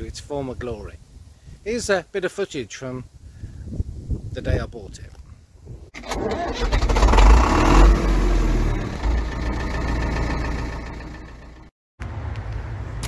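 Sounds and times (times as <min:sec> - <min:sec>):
engine revving: 0:06.0 - 0:11.7
low rumble: 0:07.0 - 0:11.7.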